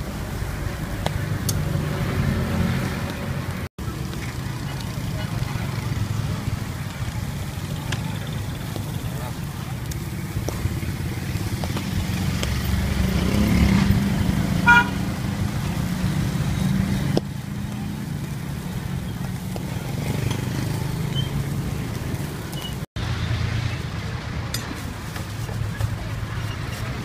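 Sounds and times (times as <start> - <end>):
motorbike and car engines: 0.0 - 27.0
vehicle horn: 14.6 - 15.0.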